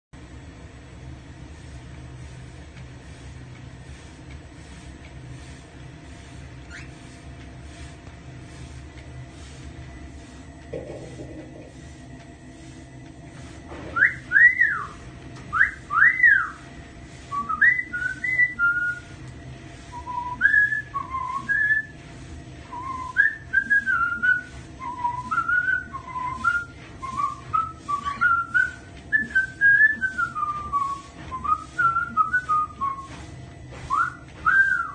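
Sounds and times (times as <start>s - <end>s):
cockatiel whistling: 6.7s - 7.0s, 14.0s - 16.6s, 17.3s - 19.0s, 20.0s - 21.9s, 33.9s - 34.9s.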